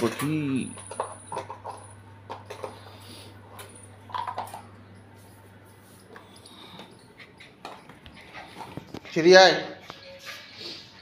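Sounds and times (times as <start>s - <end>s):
steady low hum: 0.0s - 9.1s.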